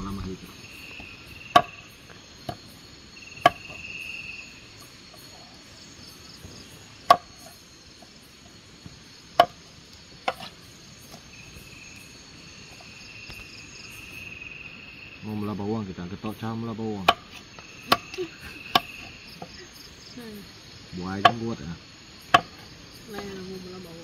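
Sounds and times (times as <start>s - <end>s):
crickets chirring: 0.0s - 24.0s
knife chopping on wooden board: 9.4s - 9.6s.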